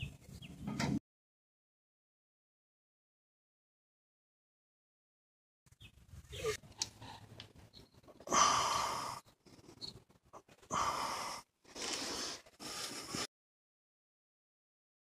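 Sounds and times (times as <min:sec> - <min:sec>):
person breathing out heavily: 0:08.2 - 0:09.4, 0:10.7 - 0:13.3.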